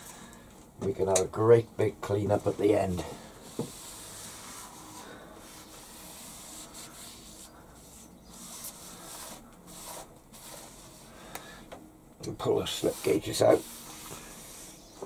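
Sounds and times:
cloth wiping on steel table: 0:02.4 - 0:11.2, 0:12.5 - 0:15.0.

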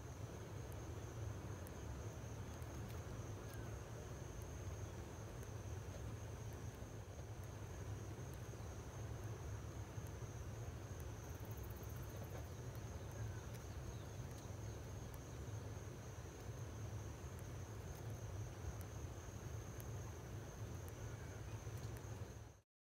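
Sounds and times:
constant low hum: 0:00.0 - 0:22.6
faint clicks: 0:02.4 - 0:03.8, 0:11.0 - 0:15.3, 0:19.7 - 0:20.0, 0:20.6 - 0:22.5
high-pitched insect trill: 0:08.0 - 0:22.6.

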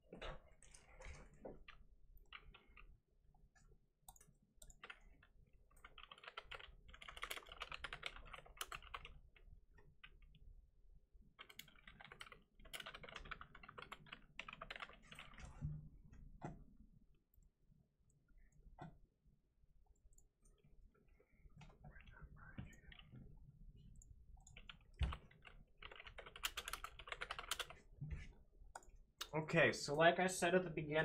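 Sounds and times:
typing on computer keyboard: 0:01.2 - 0:02.9, 0:04.1 - 0:10.4, 0:11.4 - 0:15.5, 0:24.0 - 0:27.8.

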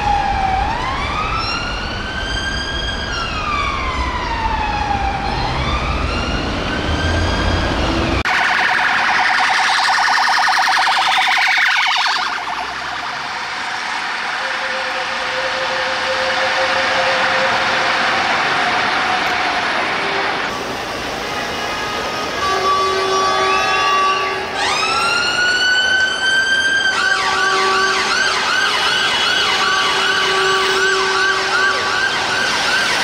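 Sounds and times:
police siren wailing: 0:00.0 - 0:20.6, 0:22.4 - 0:33.0
police siren fast warble: 0:08.2 - 0:18.2.

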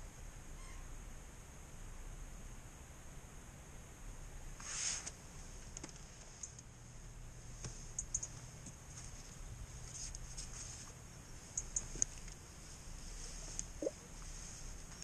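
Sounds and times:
low steady rumble: 0:00.0 - 0:15.0
brief rustle: 0:04.6 - 0:06.6.

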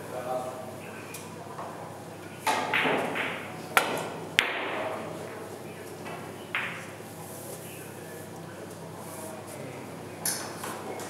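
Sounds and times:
pool balls clacking: 0:02.5 - 0:05.0.

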